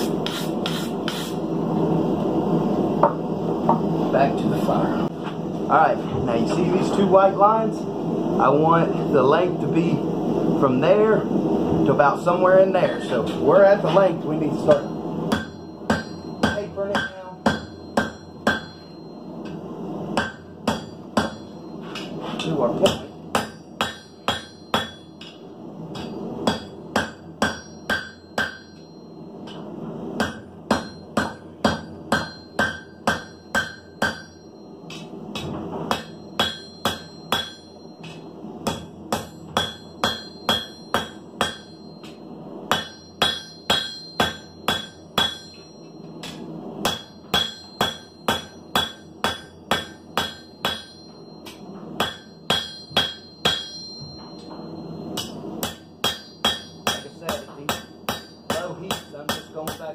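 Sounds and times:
hammer ringing on anvil: 0:14.7 - 0:19.6, 0:20.2 - 0:25.4, 0:26.0 - 0:59.9.

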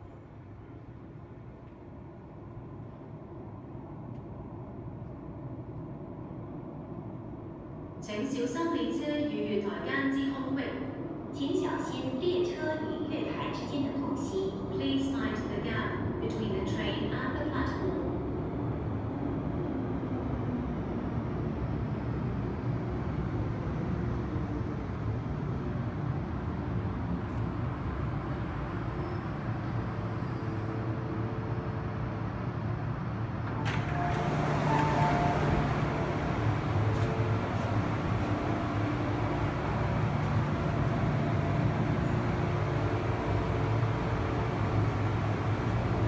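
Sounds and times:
subway train rumbling: 0:00.0 - 0:46.0
train doors opening with hiss: 0:33.3 - 0:39.4.

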